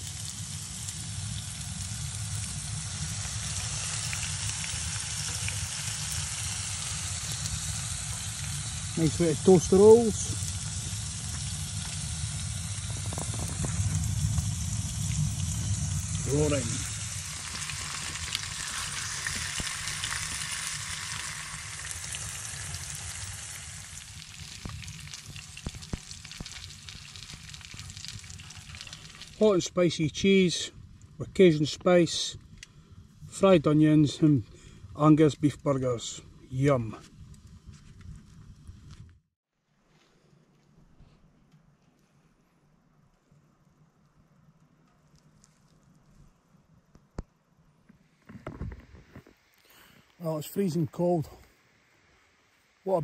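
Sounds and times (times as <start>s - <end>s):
burgers sizzling in a frying pan: 0.0s - 29.7s
low steady rumble: 0.0s - 39.2s
faint crackles: 0.0s - 53.0s.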